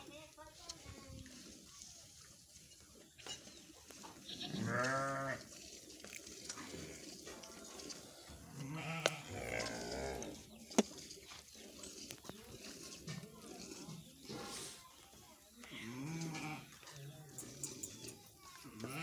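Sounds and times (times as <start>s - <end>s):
farm animal calling: 3.2s - 14.8s, 15.5s - 19.0s.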